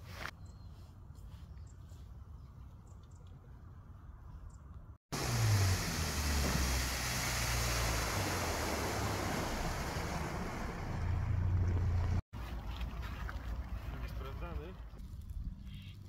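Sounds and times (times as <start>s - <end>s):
wind and water rushing: 5.1s - 14.1s
boat engine drone: 5.2s - 12.2s.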